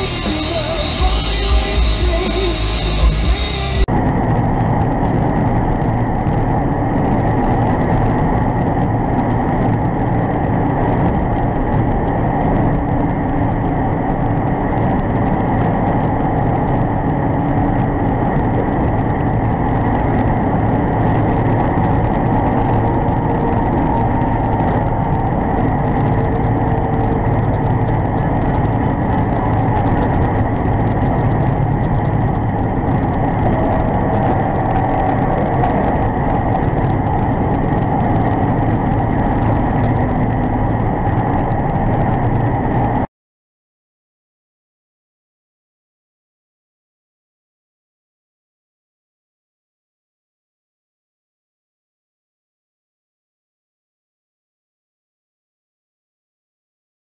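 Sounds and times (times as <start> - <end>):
truck engine and road drone: 0.0 - 43.1.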